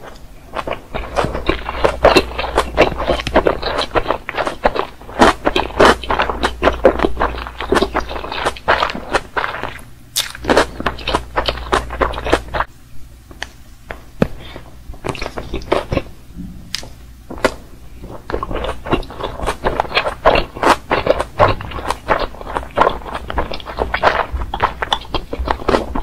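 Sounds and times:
chewing clicks and wet smacks: 18.3s - 26.0s.

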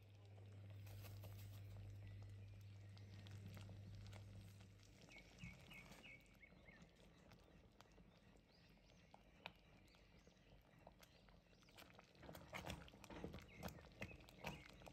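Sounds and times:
faint electrical hum: 0.0s - 5.4s.

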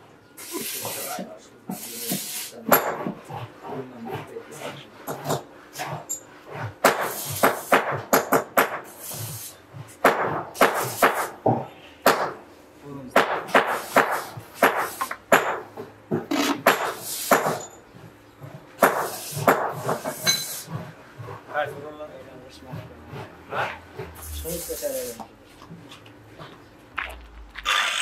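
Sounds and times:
knocks and scraping on concrete block: 1.7s - 11.8s, 13.3s - 21.9s.

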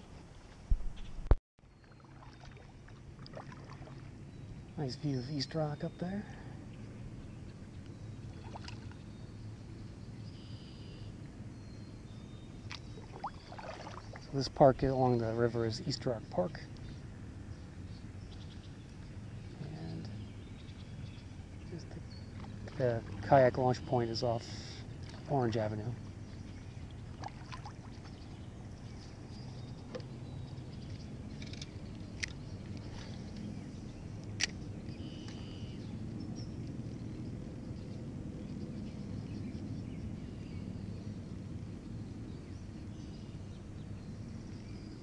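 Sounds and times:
low outdoor rumble: 0.0s - 45.0s
steady low hum: 0.0s - 45.0s
paddle splashes: 1.9s - 4.1s, 8.3s - 9.0s, 12.7s - 14.4s, 22.3s - 23.7s, 25.0s - 28.2s
faint bird calls: 34.9s - 35.9s.

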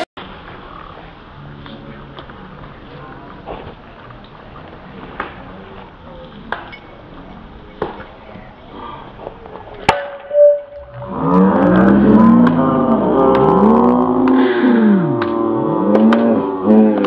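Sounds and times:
short ringing ping: 10.2s - 11.0s.

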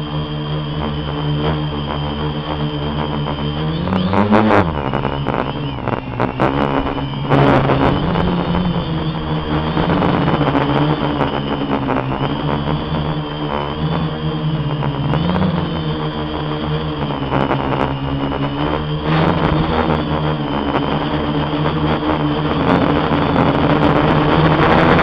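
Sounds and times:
drone motors and propellers: 0.0s - 25.0s
wind buffeting microphone: 3.8s - 16.0s.

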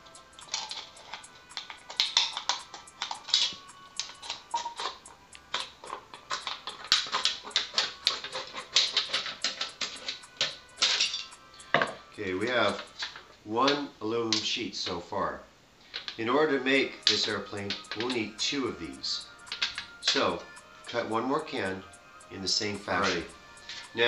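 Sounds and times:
scissors snipping metal can: 0.4s - 11.3s, 17.0s - 21.1s.

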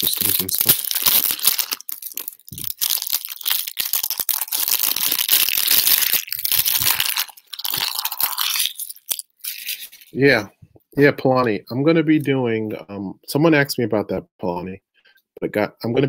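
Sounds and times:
card packaging crinkling: 0.0s - 10.2s.

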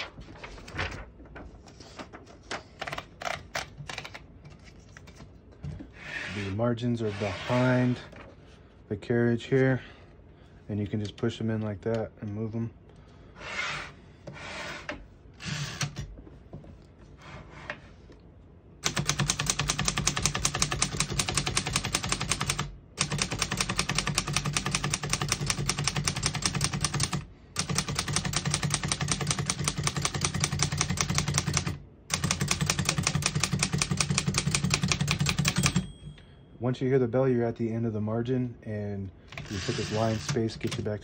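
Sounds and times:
typewriter carriage sliding: 15.4s - 16.1s, 39.3s - 40.8s
fast typewriter typing: 18.8s - 36.0s, 39.4s - 41.0s.

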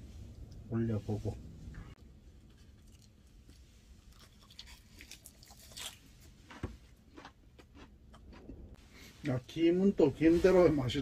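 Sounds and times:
crunching and chewing food: 2.0s - 8.8s.

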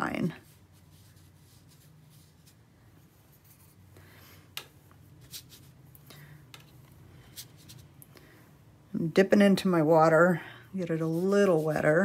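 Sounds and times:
paintbrush strokes on paper: 0.1s - 8.0s, 10.8s - 12.0s.

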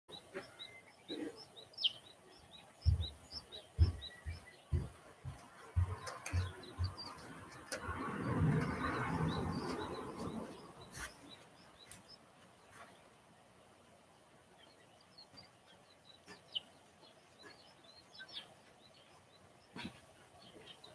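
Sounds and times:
small birds chirping: 0.1s - 20.9s
dull low thumps: 2.8s - 10.6s.

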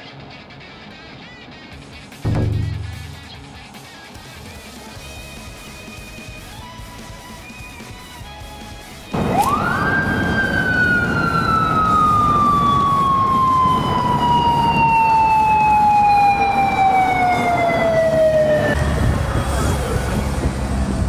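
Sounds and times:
road noise: 0.0s - 21.0s
motorcycle siren wailing: 9.1s - 19.4s.

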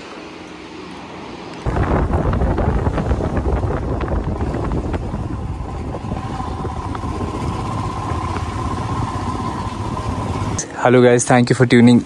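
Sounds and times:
faint steady whine: 0.0s - 12.0s
riding noise rumble: 0.0s - 12.0s
motorcycle engine running: 1.7s - 10.9s.

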